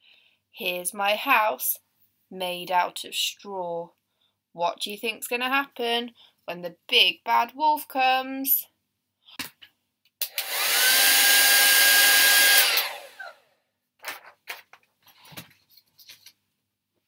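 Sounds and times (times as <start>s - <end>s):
hair dryer blowing: 10.2s - 13.4s
faint knocks and rustles: 14.0s - 16.5s.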